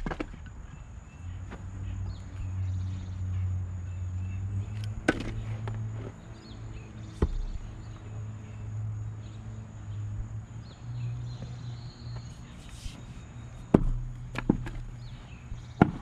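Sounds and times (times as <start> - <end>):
axe splitting firewood knocks: 0.0 - 0.4, 5.0 - 5.4, 13.7 - 14.9, 15.7 - 16.0.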